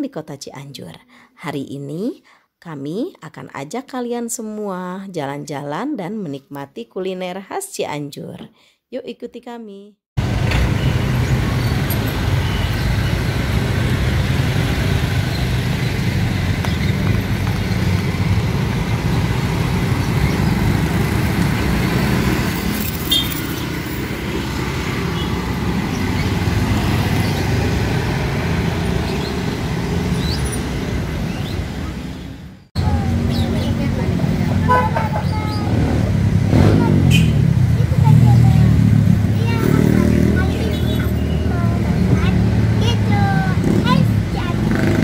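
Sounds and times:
street traffic rumble: 10.2 - 45.0.

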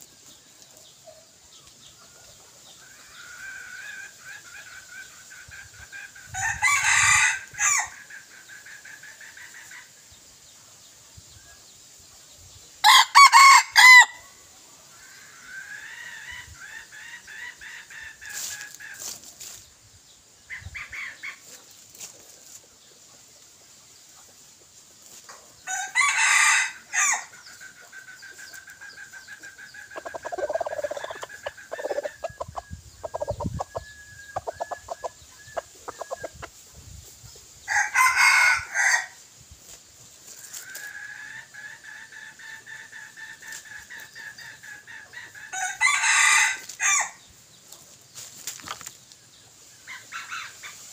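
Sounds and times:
roosters crowing: 6.2 - 8.1, 12.8 - 14.4, 25.6 - 35.0, 37.6 - 39.2, 44.1 - 47.3.

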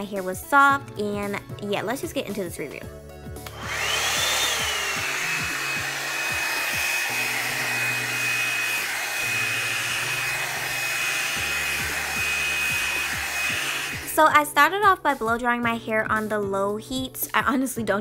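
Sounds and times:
hair dryer motor whine: 3.4 - 14.2.

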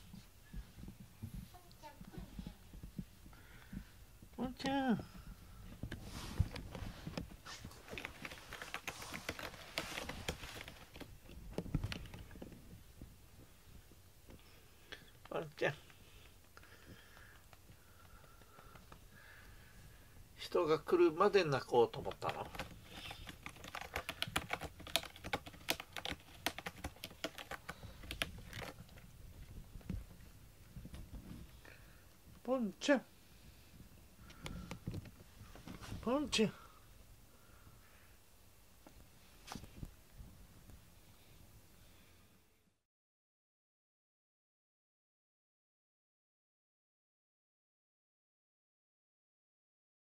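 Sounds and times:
cat claws scratching carpet: 5.7 - 12.6, 22.1 - 30.2.

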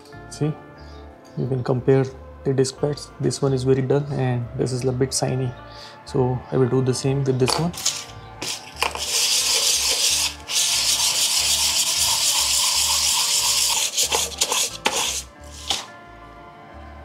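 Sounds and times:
brake pad scraping on sandpaper: 7.8 - 15.9.

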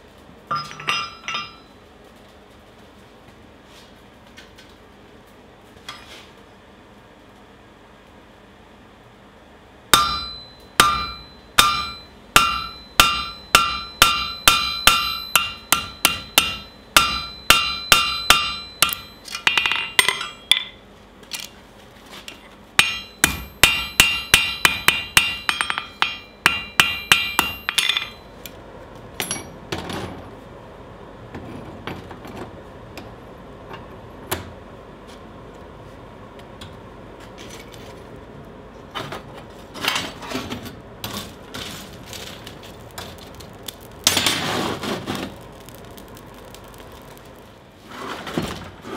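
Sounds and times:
anvil ringing: 0.5 - 1.7, 10.0 - 20.8, 22.8 - 28.3
hammer striking hot steel: 0.5 - 1.7, 9.9 - 20.8, 22.8 - 28.3, 42.2 - 47.6.

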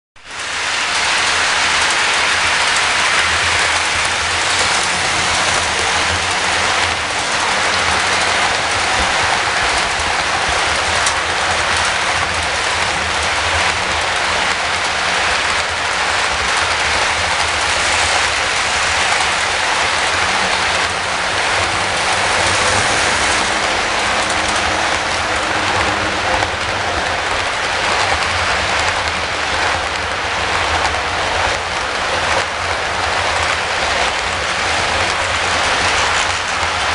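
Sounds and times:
model train wheels rattling: 33.3 - 36.9.

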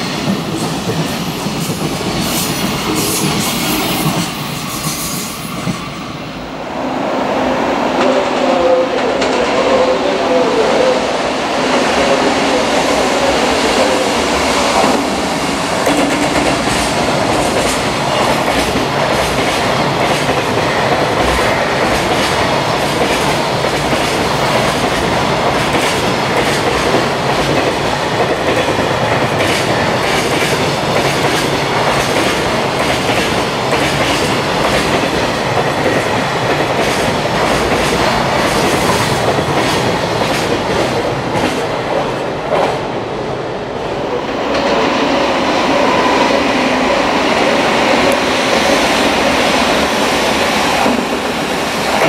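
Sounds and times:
train wheels rumbling on rails: 0.0 - 52.0
wheels clickety-clack on rail joints: 15.8 - 42.8.

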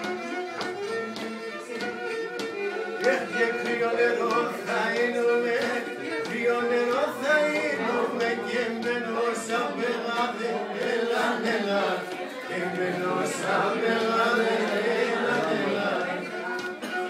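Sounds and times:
men singing together: 3.0 - 16.4.

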